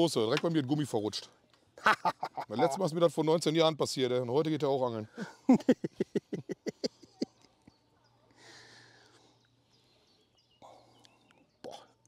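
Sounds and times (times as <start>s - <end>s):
man laughing: 1.8s - 2.8s, 5.2s - 7.3s.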